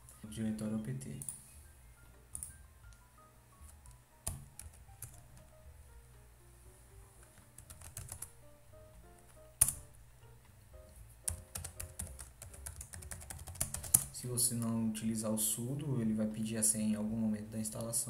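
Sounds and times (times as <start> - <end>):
quiet background music: 0.0 - 18.0
keyboard keys clicking: 2.3 - 3.0, 3.6 - 5.6, 7.2 - 8.4, 9.0 - 9.9, 10.8 - 14.8.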